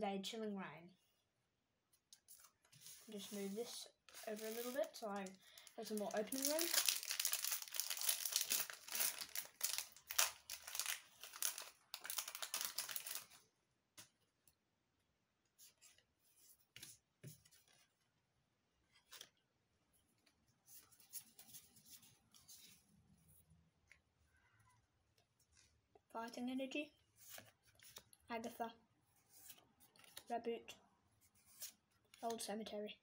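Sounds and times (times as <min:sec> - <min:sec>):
foil wrapper tearing and crinkling: 0:04.2 - 0:13.4.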